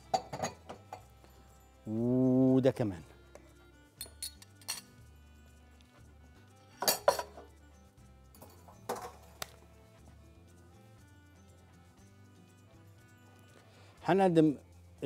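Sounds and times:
dishes and utensils clinking: 0:00.0 - 0:01.1, 0:04.0 - 0:05.0, 0:06.8 - 0:07.5, 0:08.4 - 0:09.4
faint background music: 0:00.0 - 0:15.0.

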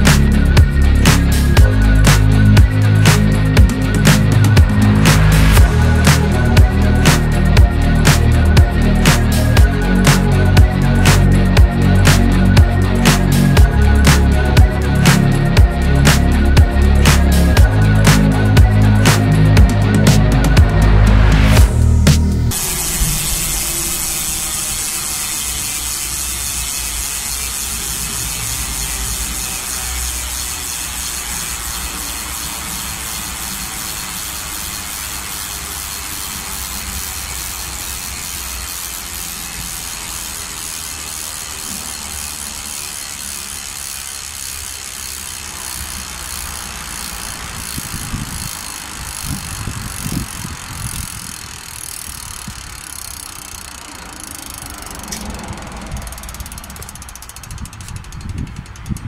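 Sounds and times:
dull low thumps: 0:00.0 - 0:23.3
bicycle freehub ratchet clicking: 0:00.0 - 0:59.0.

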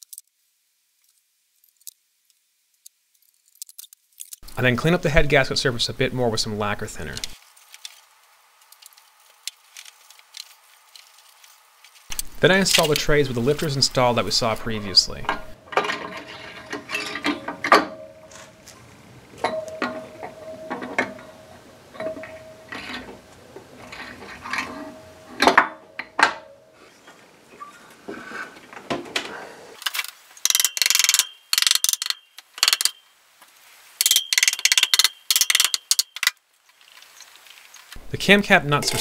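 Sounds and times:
metal clinks and knocks: 0:14.9 - 0:18.8, 0:19.4 - 0:26.8, 0:38.0 - 0:39.0
socket ratchet clicking: 0:30.4 - 0:33.0, 0:34.0 - 0:36.3.

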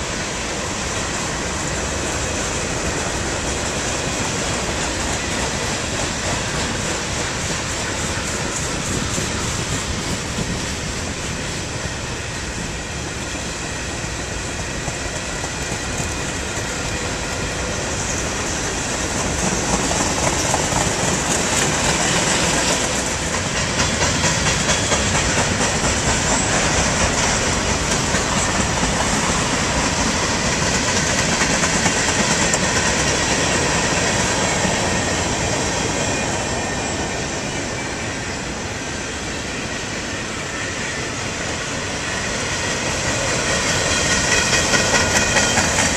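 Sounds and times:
freight train rumbling past: 0:00.0 - 0:45.9
wheels clacking over rail joints: 0:13.9 - 0:37.6, 0:42.0 - 0:45.9.

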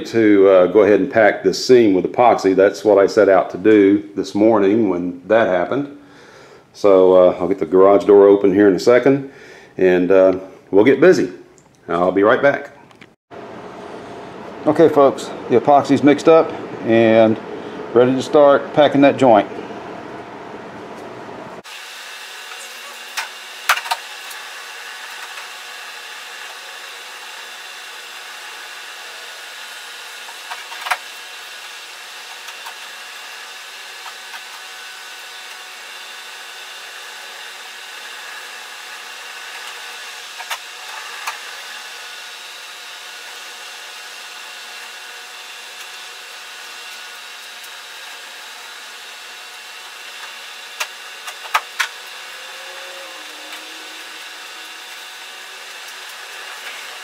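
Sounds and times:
fan whirring: 0:13.3 - 0:57.0.

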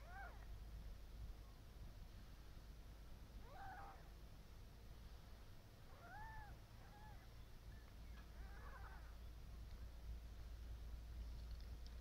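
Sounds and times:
steady low hum: 0:00.0 - 0:12.0
cat mewing: 0:03.4 - 0:04.1.

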